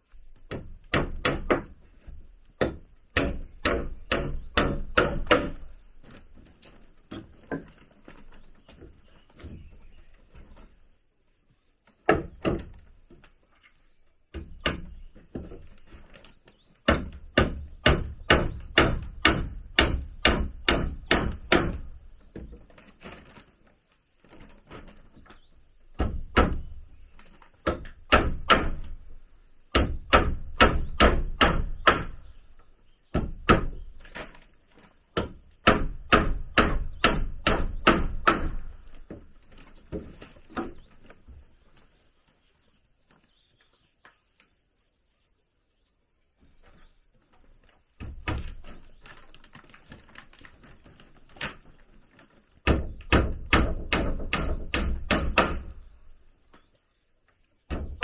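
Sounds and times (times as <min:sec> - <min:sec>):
tool striking wood: 0:02.6 - 0:05.8, 0:16.8 - 0:21.9, 0:27.6 - 0:29.0, 0:29.7 - 0:32.3, 0:35.2 - 0:38.8, 0:52.6 - 0:55.8.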